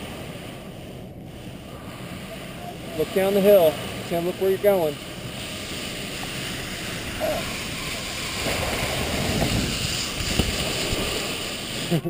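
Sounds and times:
wind noise on microphone: 5.2s - 12.0s.

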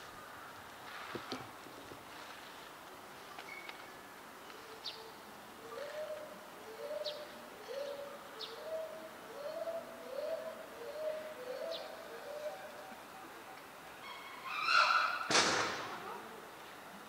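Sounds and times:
dove cooing: 4.6s - 13.5s.

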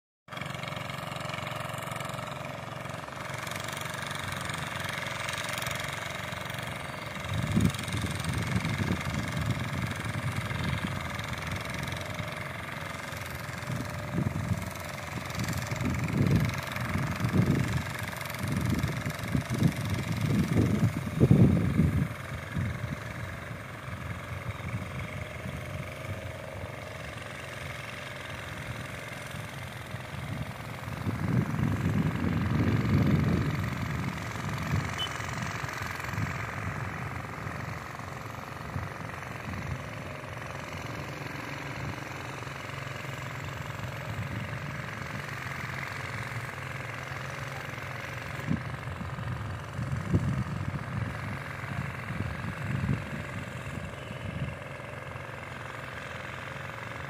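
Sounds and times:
engine running: 0.3s - 57.0s.

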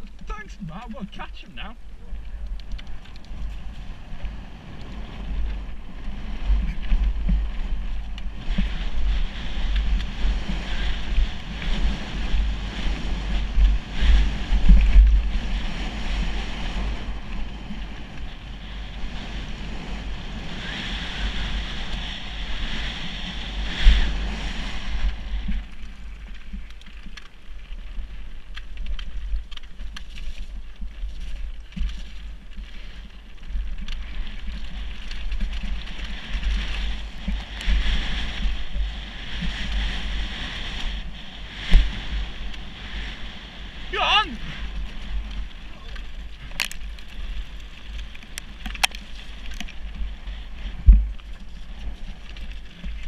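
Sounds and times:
wind rumbling on microphone: 0.0s - 53.0s
bike tyres crunching on gravel: 24.1s - 43.8s, 44.4s - 53.0s.

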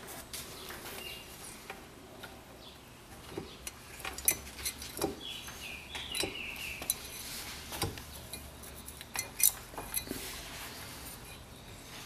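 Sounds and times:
small metal clicks and clinks: 8.2s - 10.1s.

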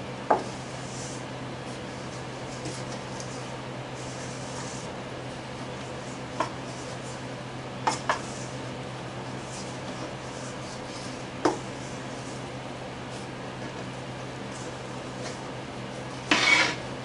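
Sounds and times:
steady low hum: 0.0s - 17.0s
spoon scraping dough in bowl: 16.1s - 16.9s.

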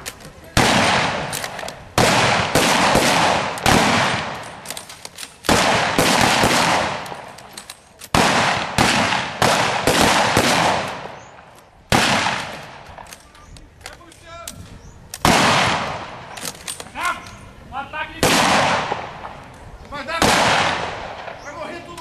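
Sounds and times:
blank gunshots echoing: 0.5s - 13.1s, 15.2s - 16.8s, 18.2s - 19.5s, 20.1s - 22.0s.

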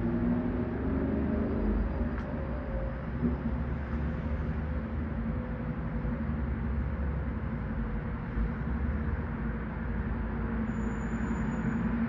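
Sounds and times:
thin steady whistle: 10.7s - 12.0s.

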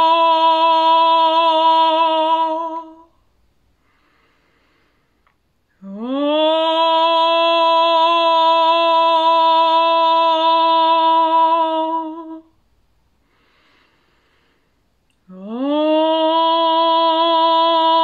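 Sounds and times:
woman singing a long held vowel: 0.0s - 3.3s, 5.7s - 12.6s, 15.2s - 18.0s.

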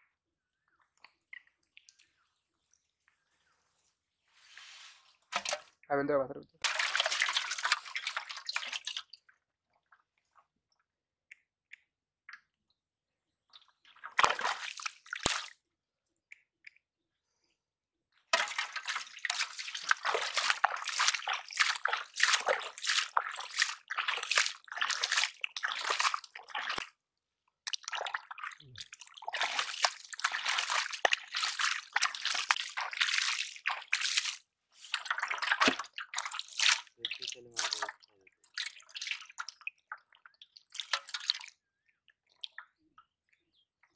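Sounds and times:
mud squelching: 5.3s - 5.8s, 6.6s - 9.3s, 13.5s - 15.5s, 18.3s - 27.0s, 27.6s - 41.4s
muddy water splashing: 5.3s - 5.8s, 6.6s - 9.3s, 13.5s - 15.6s, 18.3s - 27.0s, 27.6s - 41.6s.

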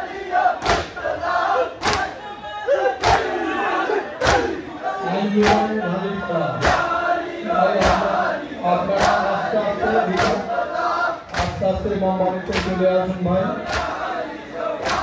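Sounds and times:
men chanting in unison: 0.0s - 15.0s
chest beating slaps: 0.6s - 1.1s, 1.8s - 2.2s, 3.0s - 3.3s, 4.2s - 4.6s, 5.4s - 5.7s, 6.6s - 7.0s, 7.7s - 8.2s, 8.9s - 9.3s, 10.0s - 10.6s, 11.3s - 11.6s, 12.4s - 12.8s, 13.6s - 14.1s, 14.8s - 15.0s.

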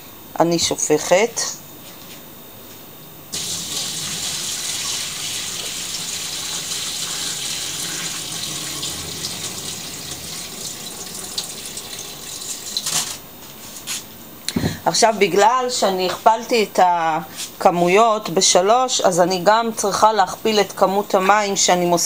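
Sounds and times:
water pouring into metal sink: 3.4s - 13.0s.

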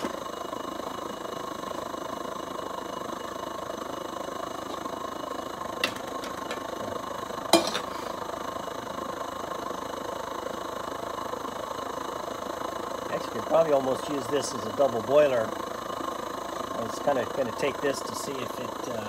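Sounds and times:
stove burner rushing: 5.6s - 8.3s
metal pots clinking: 5.8s - 6.7s, 7.5s - 8.1s.

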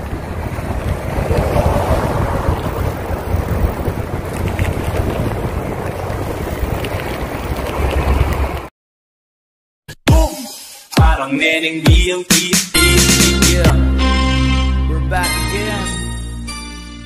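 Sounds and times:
wind buffeting microphone: 0.0s - 8.7s.

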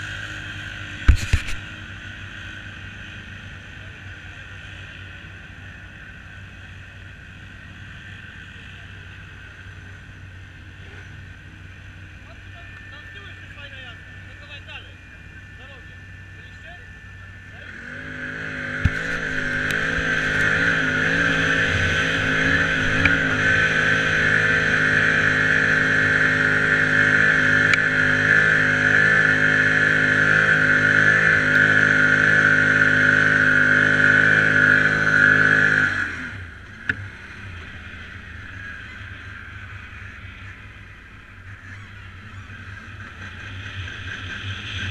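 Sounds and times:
quad bike engine revving hard: 17.6s - 44.9s.

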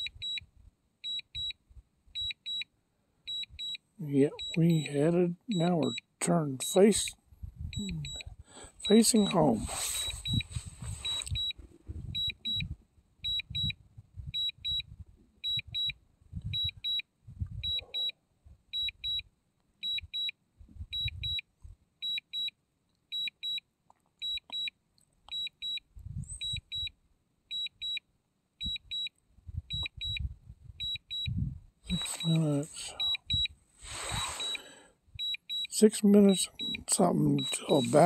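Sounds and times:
remote controller double beeps: 3.3s - 6.1s, 7.8s - 10.4s, 11.0s - 12.7s, 13.3s - 13.8s, 21.0s - 21.4s, 25.3s - 25.8s, 26.4s - 26.9s, 29.7s - 30.2s, 30.8s - 33.5s, 34.1s - 34.6s, 35.2s - 38.0s
wind gusts on microphone: 7.3s - 8.4s, 9.6s - 17.8s, 26.0s - 26.9s, 29.4s - 32.0s.

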